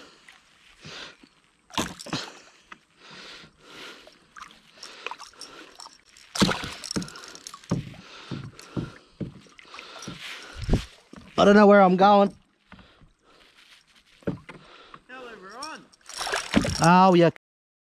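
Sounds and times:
fish splashing in water: 4.3s - 7.7s, 16.1s - 16.8s.

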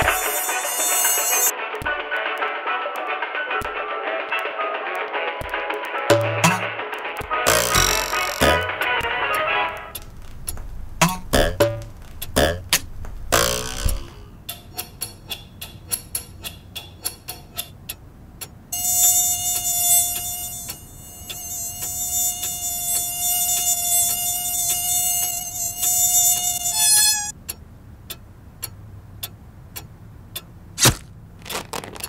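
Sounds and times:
high mosquito buzzing: 0.0s - 1.5s, 7.5s - 8.8s, 18.8s - 27.3s
sharp clicks: 9.8s - 28.8s.

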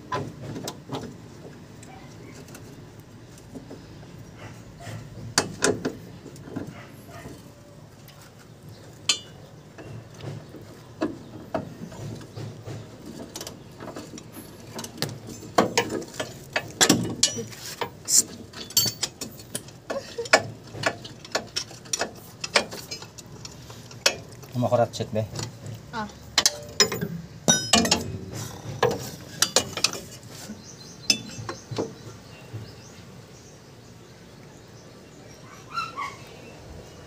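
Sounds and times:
metal clinks: 15.8s - 20.4s, 26.4s - 28.7s.

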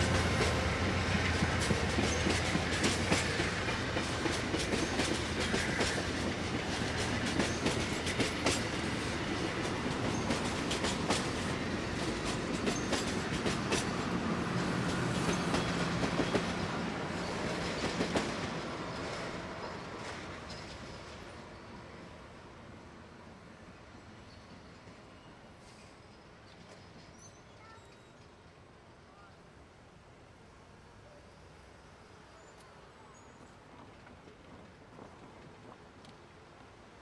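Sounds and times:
train wheels clacking over rail joints: 0.0s - 19.3s
train rolling rumble: 0.0s - 31.0s, 31.9s - 37.0s.

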